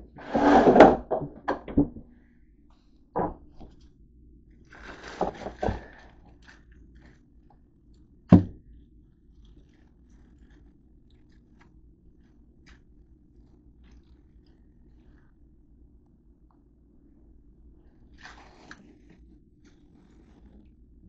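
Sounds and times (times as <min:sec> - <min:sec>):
low steady hum: 0:00.0 - 0:21.0
plastic bag crinkling: 0:04.7 - 0:07.6.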